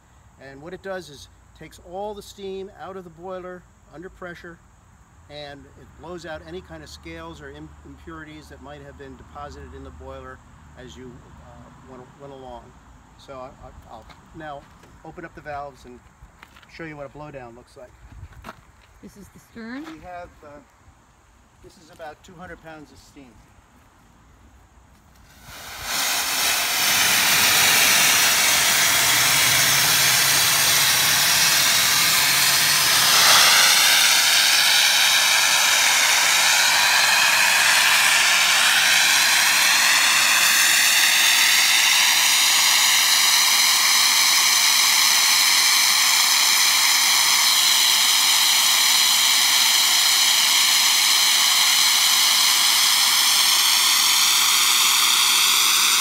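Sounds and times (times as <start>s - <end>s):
steam blasting hiss: 25.2s - 56.0s.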